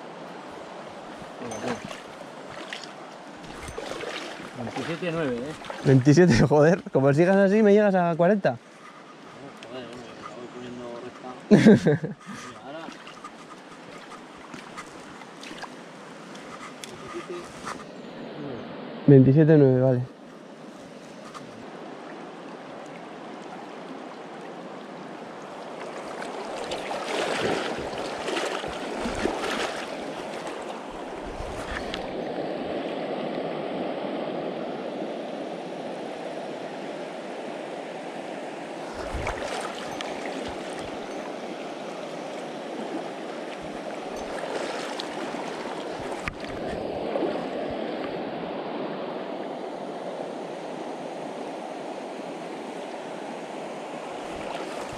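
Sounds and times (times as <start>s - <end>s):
river flowing over stones: 0.0s - 8.2s, 20.4s - 54.9s.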